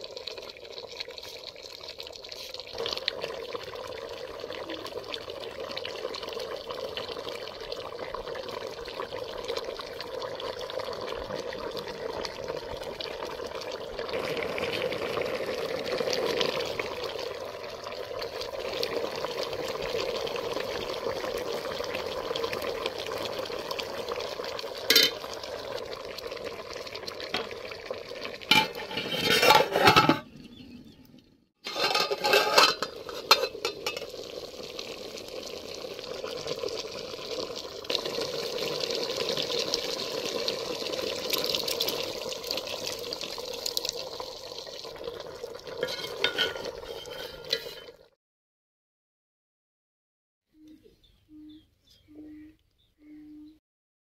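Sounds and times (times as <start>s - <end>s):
meat sizzling in a pot: 0.0s - 30.2s, 31.6s - 48.1s
spoon scraping a metal pot: 24.9s - 25.2s, 28.5s - 30.3s, 31.6s - 34.1s, 45.8s - 48.0s.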